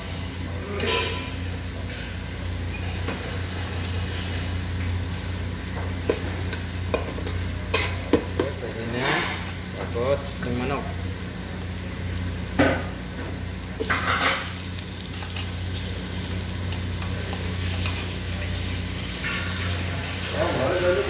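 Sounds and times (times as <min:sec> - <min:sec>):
onions sizzling in oil: 0:00.0 - 0:21.0.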